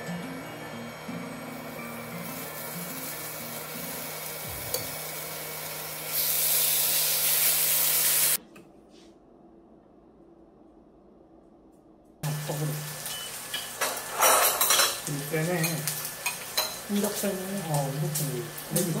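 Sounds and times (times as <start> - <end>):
meat sizzling on grill plate: 0.0 - 8.4, 12.2 - 19.0.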